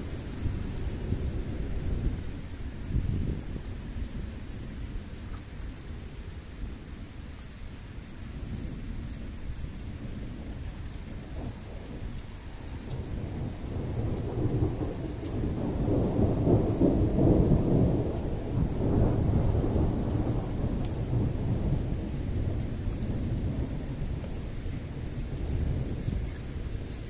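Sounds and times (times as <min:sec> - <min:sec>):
rain falling: 0:00.0 - 0:27.0
rolling thunder: 0:12.8 - 0:27.0.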